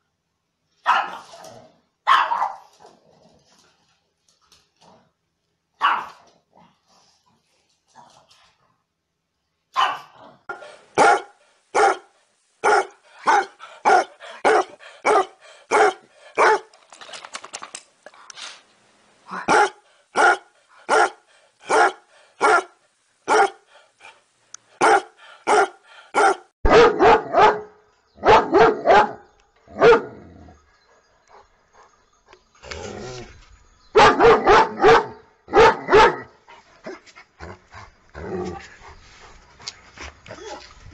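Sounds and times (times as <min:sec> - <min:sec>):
dogs barking: 0:00.9 - 0:01.3, 0:02.1 - 0:02.7, 0:05.8 - 0:06.2, 0:09.8 - 0:16.7, 0:19.5 - 0:24.2, 0:24.8 - 0:30.2, 0:33.9 - 0:36.3.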